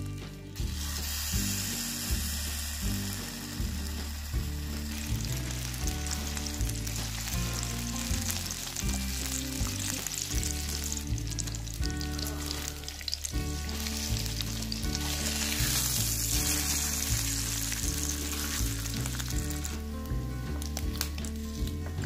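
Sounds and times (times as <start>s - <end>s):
background music with bass line: 0.0s - 22.0s
meat sizzling in hot oil: 0.1s - 21.8s.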